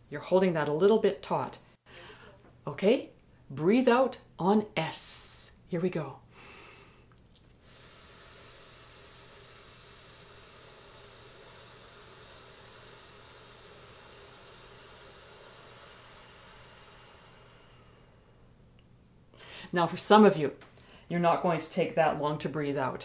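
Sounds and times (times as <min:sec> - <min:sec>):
woman's hissed exhale: 0:06.3 - 0:18.6.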